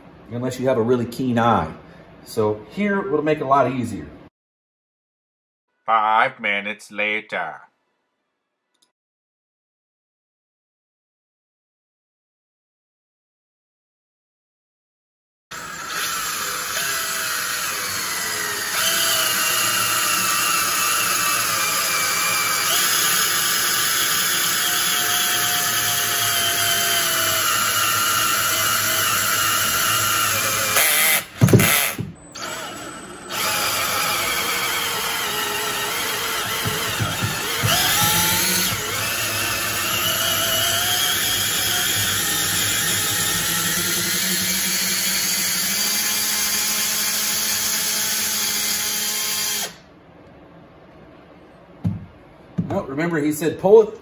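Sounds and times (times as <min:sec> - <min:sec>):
drill knocking: 0:15.5 - 0:49.8
cordless drill motor lugging: 0:15.6 - 0:49.8
drill clutch slipping: 0:15.8 - 0:49.8.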